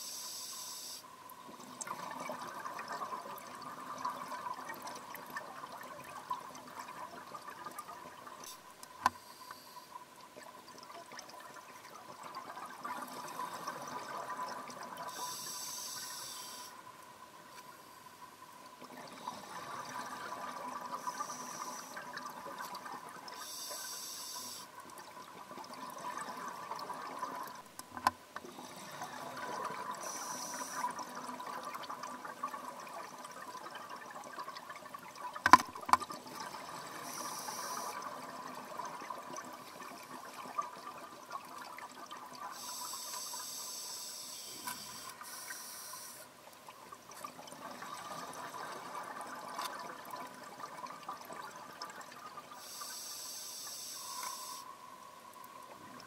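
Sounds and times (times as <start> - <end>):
steady underwater hum: 0.0 - 56.0.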